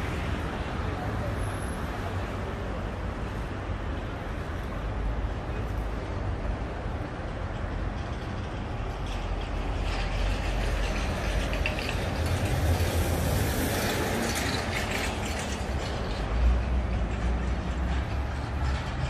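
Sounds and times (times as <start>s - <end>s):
heavy vehicle passing: 9.0s - 19.0s.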